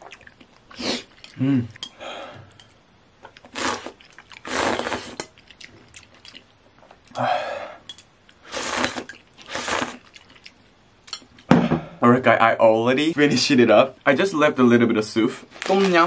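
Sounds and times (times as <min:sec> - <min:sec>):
person slurping soup: 0:00.7 - 0:01.8, 0:03.5 - 0:05.3, 0:08.4 - 0:10.1.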